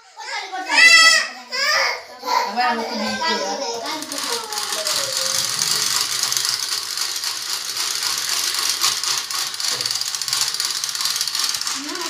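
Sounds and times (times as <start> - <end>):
whisks rattling in metal bowl: 3.1 - 12.0.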